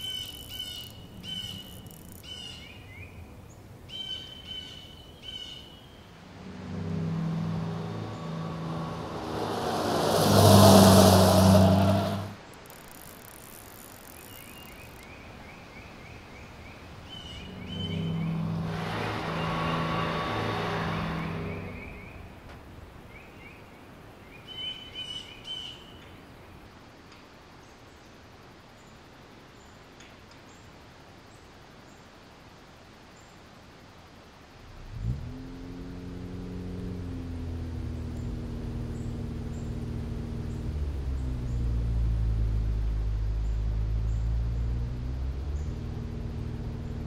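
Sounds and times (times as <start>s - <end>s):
bird chirps: 0.0s - 8.9s, 14.0s - 18.7s
car engine rising in pitch: 6.0s - 12.4s, 16.8s - 22.8s, 34.6s - 47.0s
loud low hum: 6.0s - 12.4s, 16.9s - 22.5s, 34.6s - 47.0s.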